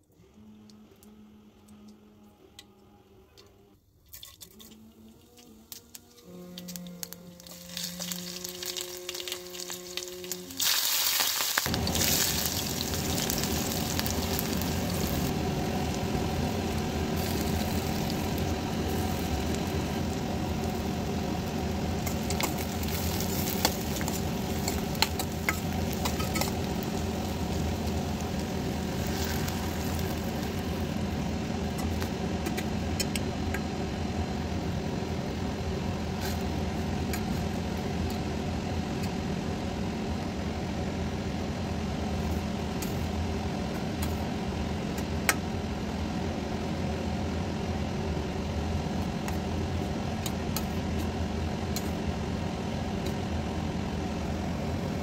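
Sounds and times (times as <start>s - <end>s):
steady low hum: 0.0s - 55.0s
oil sizzling in a pan: 7.4s - 31.3s.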